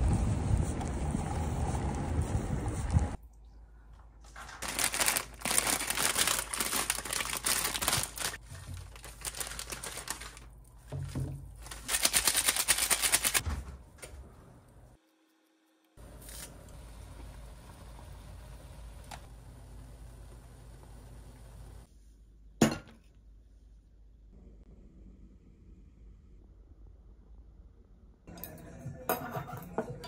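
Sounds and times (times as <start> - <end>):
plastic packaging crinkling and tearing: 4.3 - 10.6, 11.6 - 13.4.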